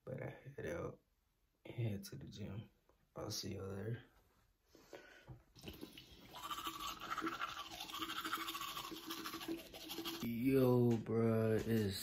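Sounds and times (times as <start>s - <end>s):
toothbrush scrubbing teeth: 5.6s - 10.4s.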